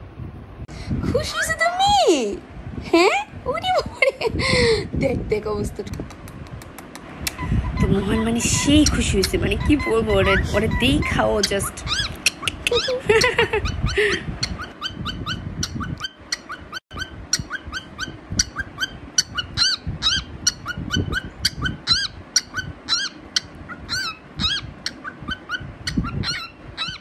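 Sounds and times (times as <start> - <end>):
cockatiel chirping: 7.4 - 27.0.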